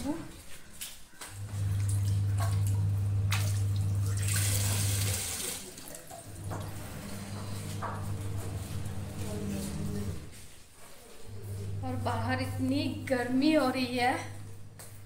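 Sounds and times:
tap water running and splashing: 1.2s - 7.1s.

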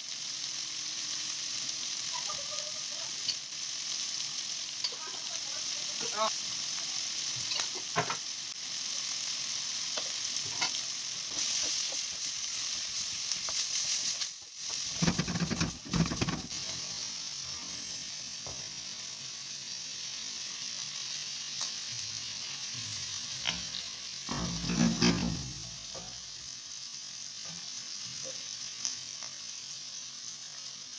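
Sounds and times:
food sizzling in a wok: 0.0s - 30.9s
spatula scraping a pan: 14.7s - 16.7s, 22.9s - 25.6s.

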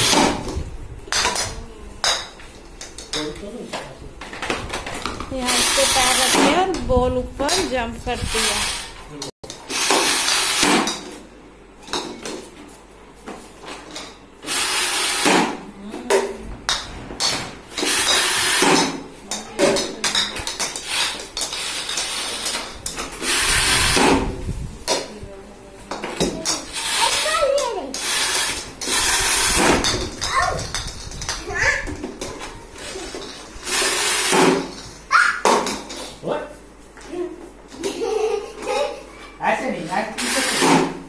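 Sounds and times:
stomps on air pump: 0.0s - 0.7s, 14.5s - 15.6s, 23.1s - 24.5s, 33.7s - 34.8s
plastic balls clattering on floor: 26.1s - 36.1s
children's voices: 26.4s - 27.9s, 31.4s - 33.2s.

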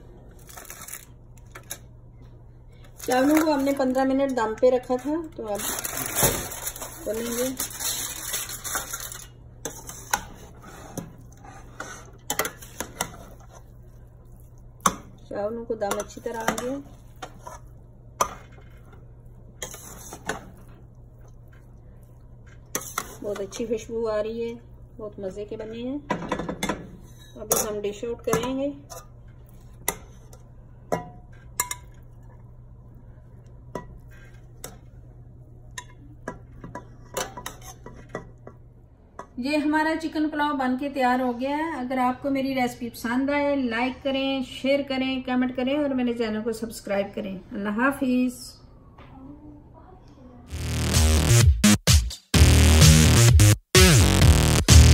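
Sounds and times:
metal spoon clinking on a pot: 30.9s - 32.0s.

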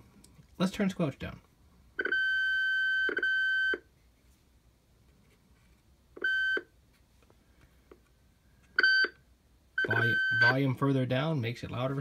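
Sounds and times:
radio speaker squealing: 9.8s - 10.6s.

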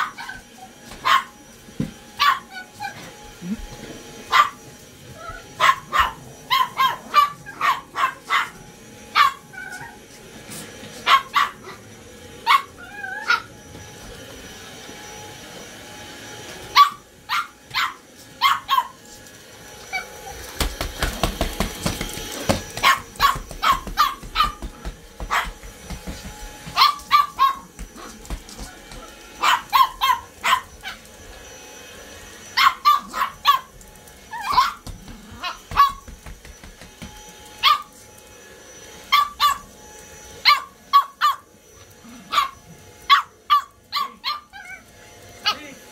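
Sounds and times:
vacuum cleaner whine: 0.0s - 45.9s
small dog barking: 1.0s - 1.4s, 2.2s - 3.0s, 4.3s - 4.6s, 5.3s - 10.0s, 11.0s - 11.8s, 12.4s - 13.5s, 16.7s - 19.0s, 22.7s - 25.7s, 26.7s - 28.2s, 29.0s - 31.0s, 32.5s - 34.8s, 35.4s - 36.1s, 37.6s - 37.9s, 39.1s - 39.7s, 40.4s - 41.5s, 42.3s - 44.8s.

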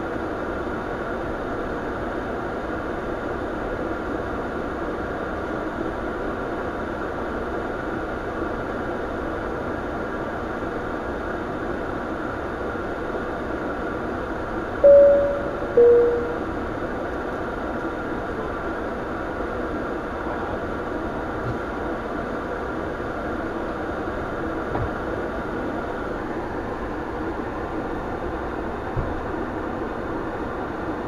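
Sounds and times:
aircraft cockpit rushing hum: 0.1s - 31.0s
two-note electronic chime: 14.8s - 16.5s.

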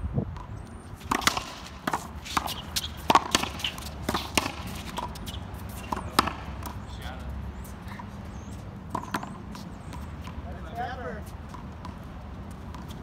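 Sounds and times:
racquet hitting ball: 0.4s - 6.9s
ball hitting concrete wall: 1.1s - 5.2s, 5.9s - 6.8s.

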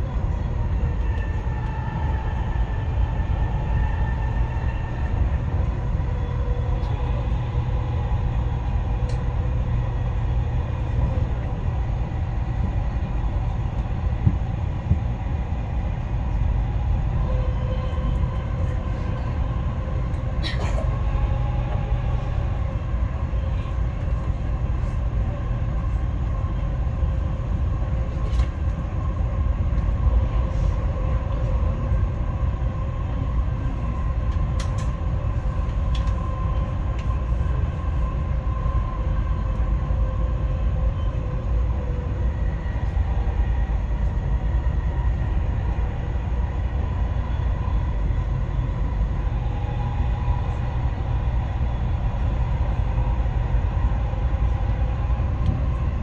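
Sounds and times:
train wheels rumbling on track: 0.0s - 56.0s.

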